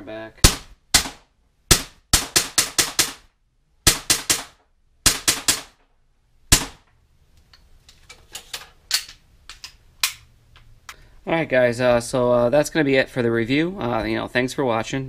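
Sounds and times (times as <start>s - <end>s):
bb pistol shots: 0.4s - 5.8s, 6.5s - 6.9s.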